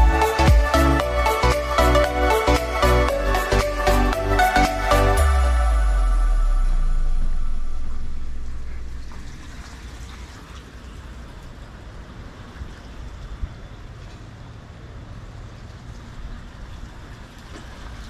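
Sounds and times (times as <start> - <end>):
background music: 0.0 - 8.4
low rumble: 3.0 - 10.0.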